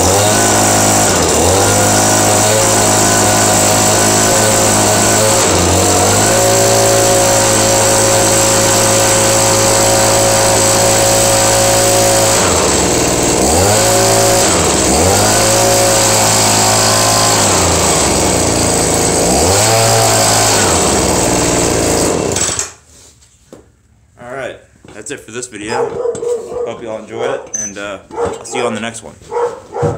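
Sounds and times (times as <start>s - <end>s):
leaf blower engine revving: 0.0s - 22.8s.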